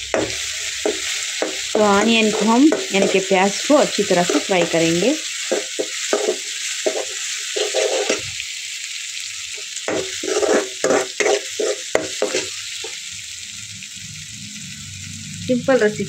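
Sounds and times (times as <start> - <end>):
steel spoon scraping pan: 0.0 - 8.3, 9.9 - 13.0
onions sizzling in oil: 0.0 - 16.0.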